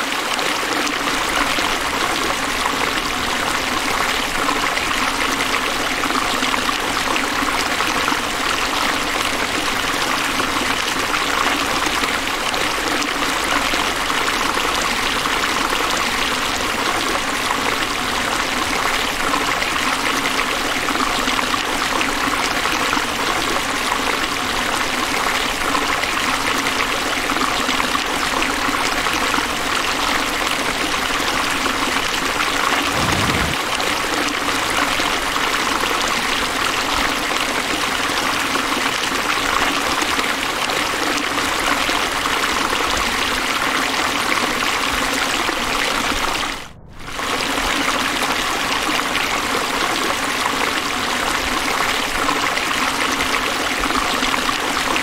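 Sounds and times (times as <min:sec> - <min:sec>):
waterfall roaring: 0:32.6 - 0:33.9.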